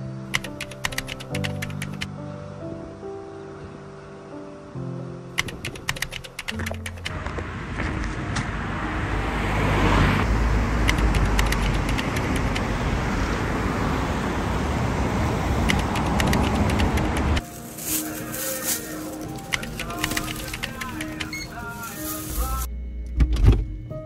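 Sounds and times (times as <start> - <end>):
background music: 0.0 - 7.2, 16.3 - 24.0
vehicle road noise rumble: 5.1 - 22.7.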